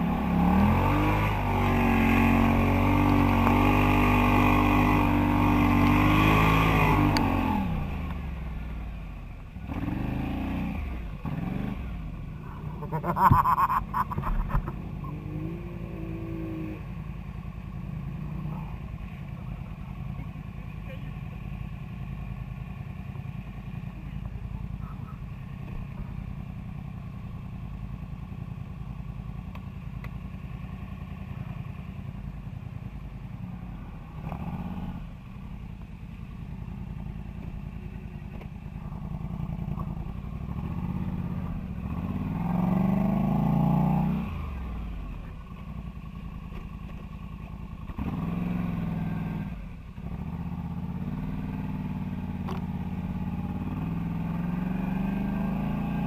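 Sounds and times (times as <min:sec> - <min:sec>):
atv engine revving: 0:00.0 - 0:21.8, 0:33.3 - 0:35.6, 0:36.2 - 0:56.0.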